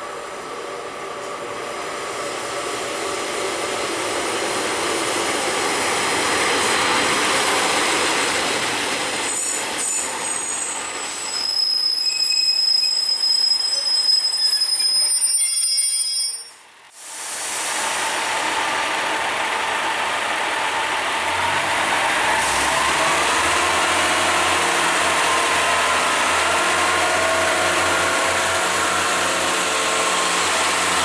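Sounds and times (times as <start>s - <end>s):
diesel train passing: 0.0s - 15.2s, 16.6s - 31.0s
wheels squealing: 4.7s - 16.6s.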